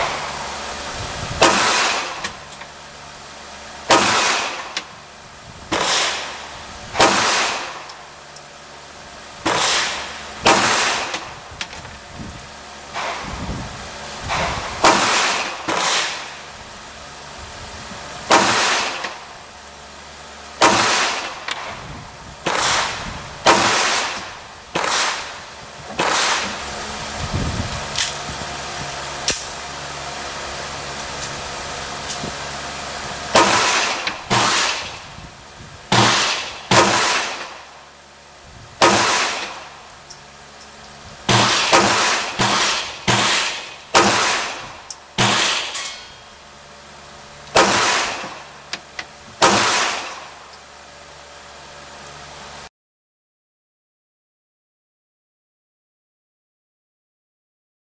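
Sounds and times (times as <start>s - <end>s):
pistol gunshots with echo: 3.9s - 4.7s, 7.0s - 7.8s, 9.5s - 11.2s, 14.8s - 16.3s, 20.6s - 21.7s, 22.5s - 25.4s, 26.0s - 26.6s, 33.3s - 35.0s, 35.9s - 37.6s, 38.8s - 39.6s, 41.3s - 45.8s, 47.6s - 48.5s, 49.4s - 50.2s.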